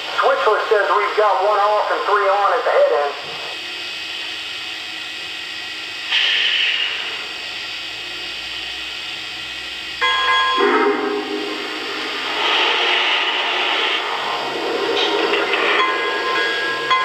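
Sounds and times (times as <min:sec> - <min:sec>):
steady mechanical background sound: 0:00.0 - 0:17.0
steam hissing burst: 0:06.0 - 0:07.7, 0:10.6 - 0:17.0
chime steam whistle: 0:10.0 - 0:11.9.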